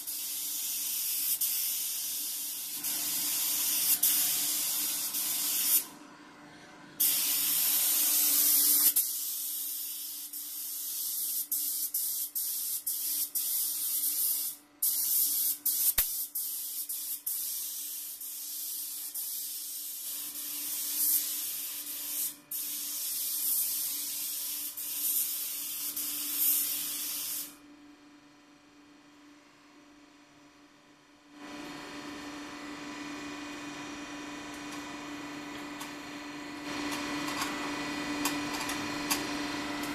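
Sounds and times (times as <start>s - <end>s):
spray gun hissing: 0.0s - 5.8s, 7.0s - 27.5s.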